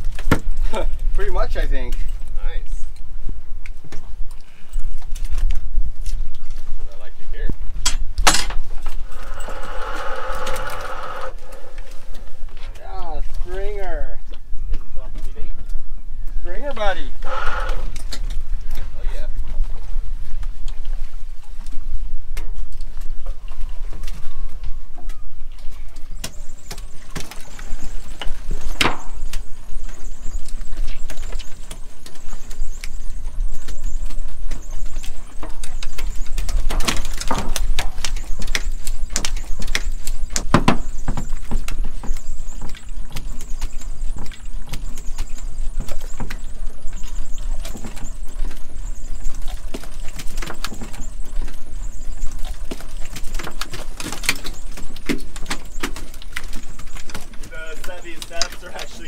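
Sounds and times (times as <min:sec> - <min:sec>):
knocks and clatter of gear: 0:16.4 - 0:59.0.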